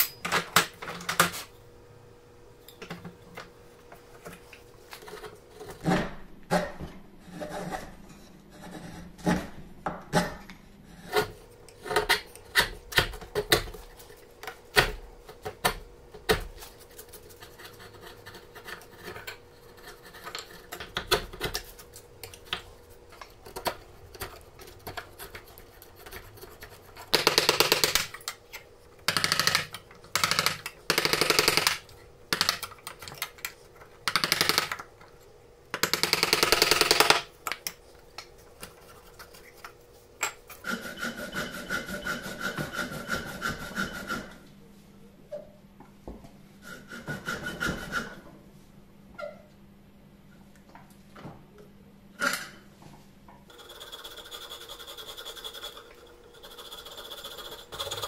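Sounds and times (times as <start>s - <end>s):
file rasping across wood: 17.2s - 20.8s, 40.6s - 44.4s, 46.6s - 48.2s, 53.5s - 58.0s.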